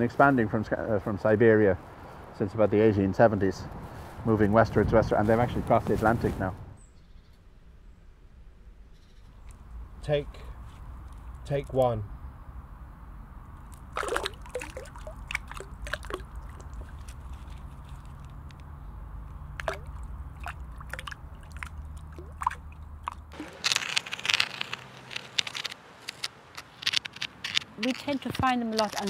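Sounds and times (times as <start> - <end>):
water drips and plops: 13.7 - 17.4, 19.5 - 23.3
stick scraping stone: 23.1 - 29.0.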